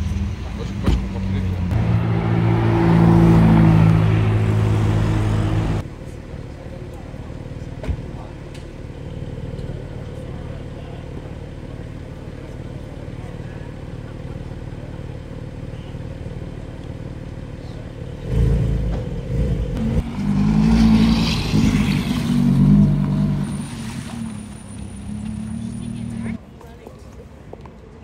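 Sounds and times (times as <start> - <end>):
car engine rumbling low: 0.0 - 20.0.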